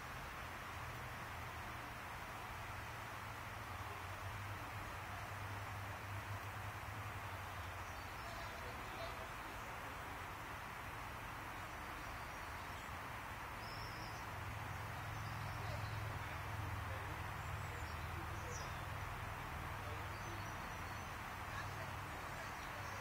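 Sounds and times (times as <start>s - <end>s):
steady hiss: 0.0s - 23.0s
faint bird chirps: 13.6s - 19.0s.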